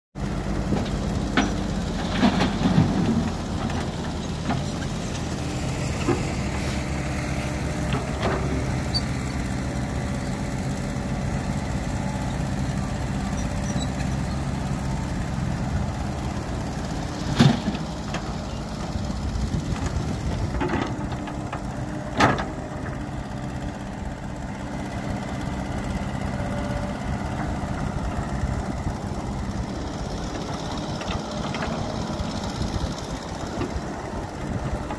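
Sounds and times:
excavator diesel engine running: 0:00.2 - 0:34.9.

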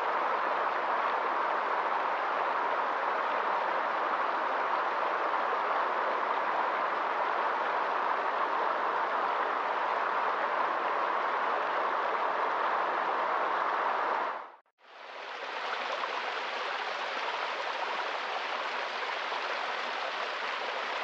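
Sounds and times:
stream running over stones: 0:14.8 - 0:21.0.

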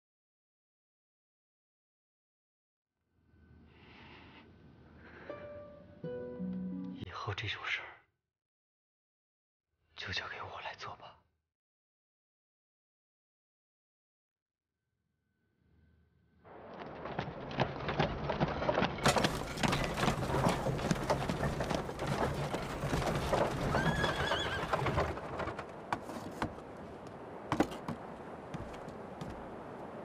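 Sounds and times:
hooves clopping on paving: 0:16.8 - 0:29.8
horse whinnying: 0:23.5 - 0:25.2.

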